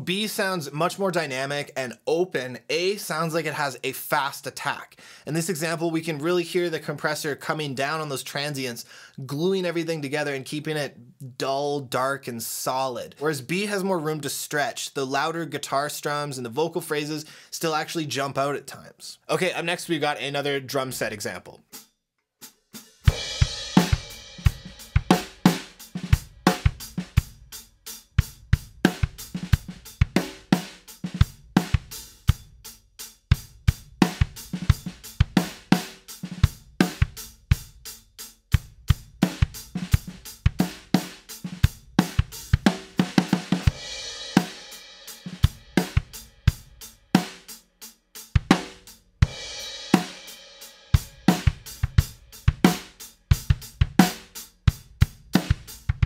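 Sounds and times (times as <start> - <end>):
drum kit groove: 0.0 - 18.2, 19.4 - 56.0.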